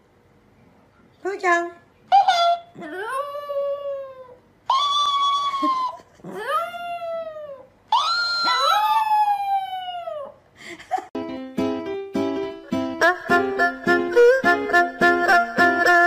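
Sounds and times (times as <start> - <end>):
dog howling: 2.3 - 10.4
plucked-string music: 11.2 - 16.0.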